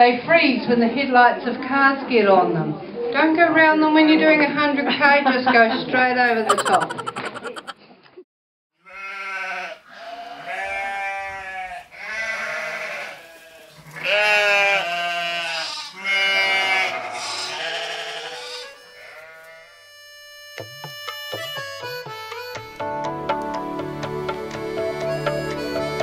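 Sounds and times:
sheep bleating: 8.8 - 19.8
music with held notes: 18.7 - 26.0.

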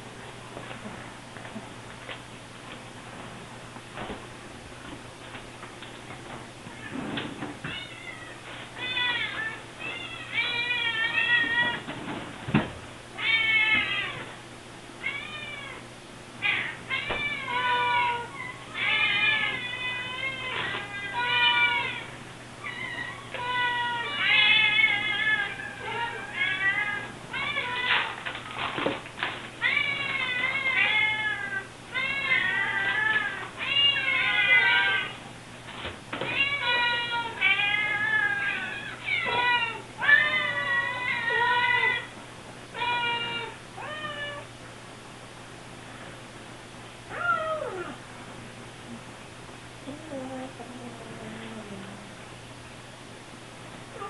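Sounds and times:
kittens meowing: 7.7 - 11.8, 13.2 - 14.4, 15.0 - 15.8, 16.4 - 28.2, 29.6 - 35.2, 36.2 - 42.1, 42.7 - 44.5, 47.1 - 48.0.

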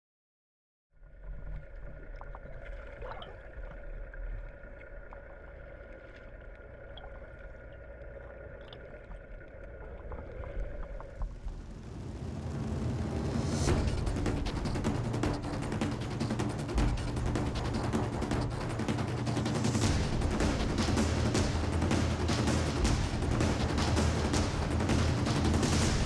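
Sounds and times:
faint steady hum: 1.0 - 13.0
water wash from boat: 1.2 - 26.0.

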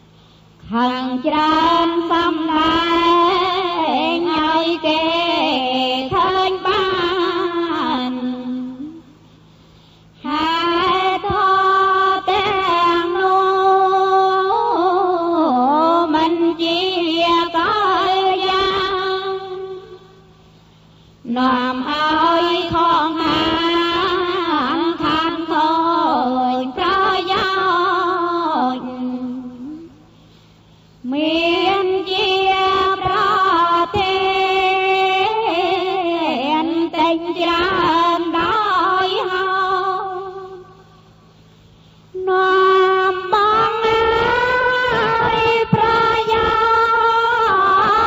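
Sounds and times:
person chanting melodically: 0.6 - 9.2, 10.2 - 20.3, 21.2 - 30.1, 31.0 - 41.0, 42.1 - 48.0.

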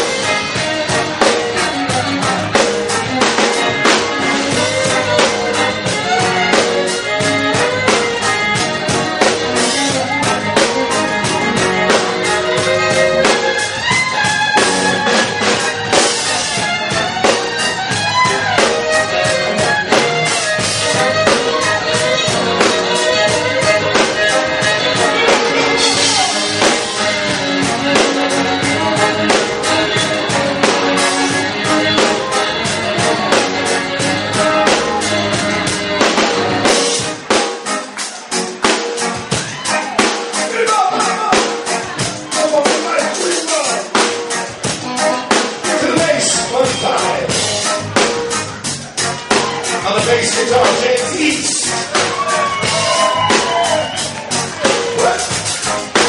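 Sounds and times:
bowed fiddle: 0.0 - 37.4
deep bass: 0.0 - 37.4, 43.9 - 56.0
electric guitar: 0.0 - 42.4, 43.7 - 56.0
drum kit beat: 0.0 - 56.0.

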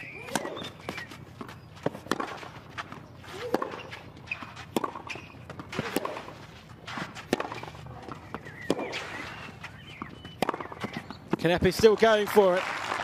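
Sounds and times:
racket hitting tennis ball: 0.0 - 11.5.

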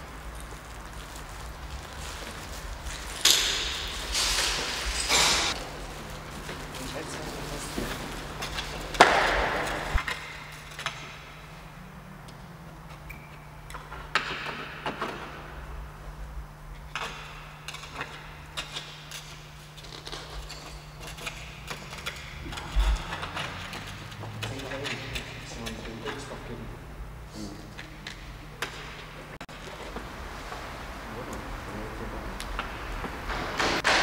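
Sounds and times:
rustling scrape: 0.1 - 10.1
low hum: 21.2 - 24.2.

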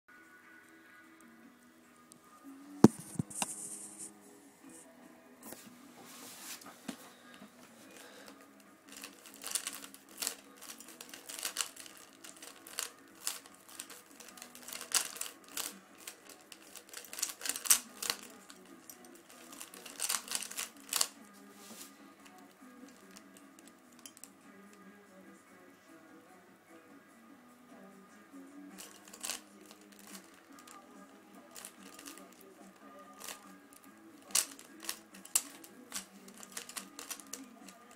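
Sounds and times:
puzzle cube clicking: 8.9 - 21.2, 28.8 - 30.8, 31.5 - 32.4, 33.2 - 37.9.

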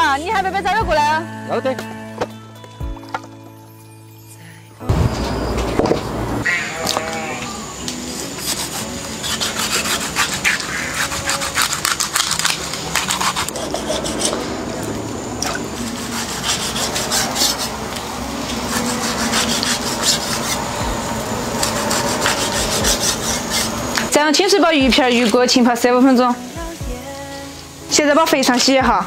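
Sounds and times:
cleaver scraping and cutting fish: 8.1 - 14.5, 15.4 - 18.0, 18.6 - 20.8, 21.6 - 24.1.

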